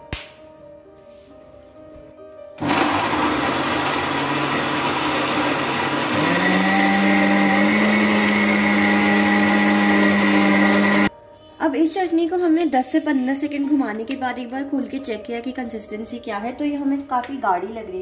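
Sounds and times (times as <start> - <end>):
mixer grinder motor running: 2.6 - 11.1.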